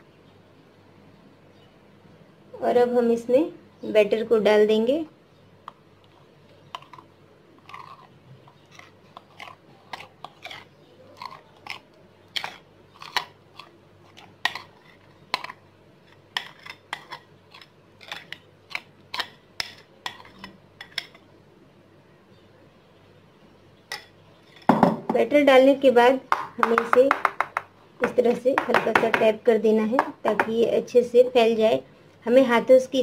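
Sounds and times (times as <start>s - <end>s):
spoon scraping batter from glass bowl: 5.7s - 21.3s.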